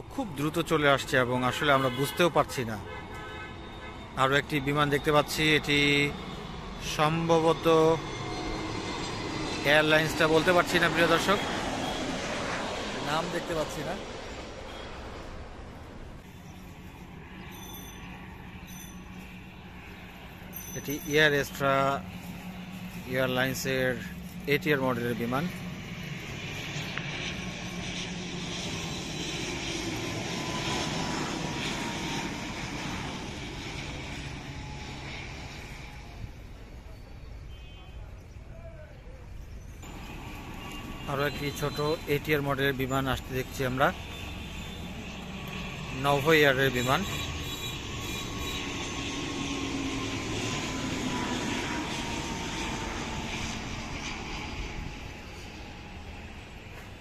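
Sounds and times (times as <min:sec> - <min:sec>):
propeller airplane drone: 0:00.0 - 0:57.0
turboprop airliner passing overhead: 0:00.0 - 0:57.0
faint thin whine: 0:11.2 - 0:24.4, 0:39.4 - 0:46.0.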